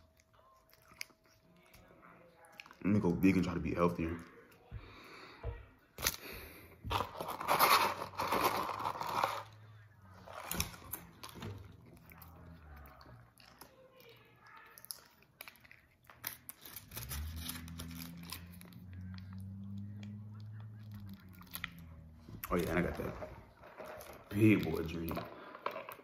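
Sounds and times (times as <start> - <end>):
paper wrapper crinkling: 6.9 - 9.6, 15.4 - 18.8.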